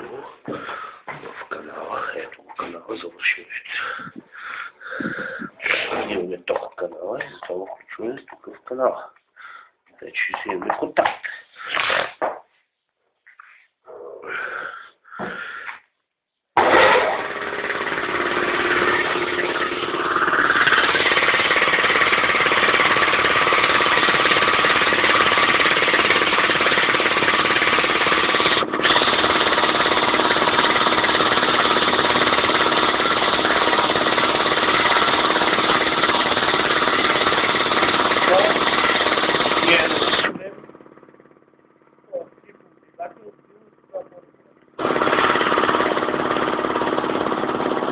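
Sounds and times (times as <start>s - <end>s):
air compressor running: 0.0s - 2.2s, 16.6s - 47.9s.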